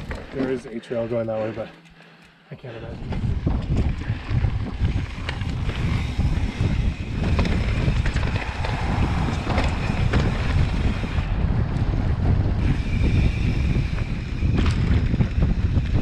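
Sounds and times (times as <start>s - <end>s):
bike clicks and rattles: 0.0s - 16.0s
wind buffeting microphone: 2.8s - 16.0s.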